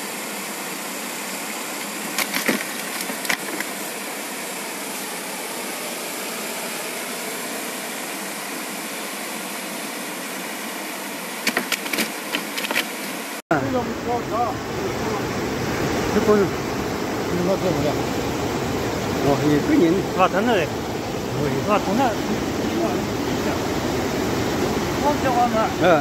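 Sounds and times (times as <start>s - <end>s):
stream water rushing: 0.0s - 26.0s
knocks on bamboo: 11.4s - 12.9s.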